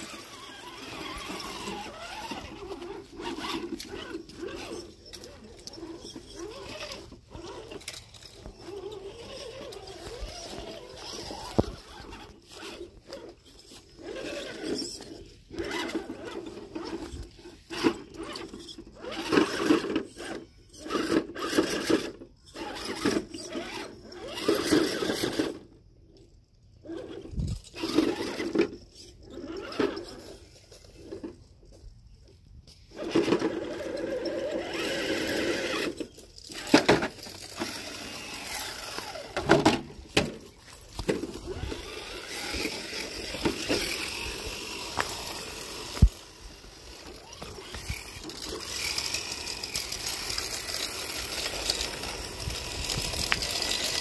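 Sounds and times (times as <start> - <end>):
small electric motor whining: 0.0 - 54.0.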